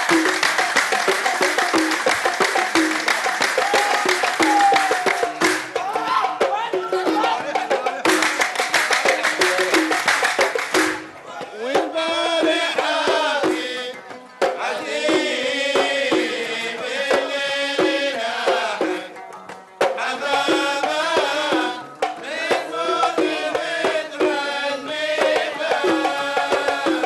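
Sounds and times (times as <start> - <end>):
hand drums beating: 0.0 - 27.0
man singing: 11.2 - 14.0, 22.8 - 27.0.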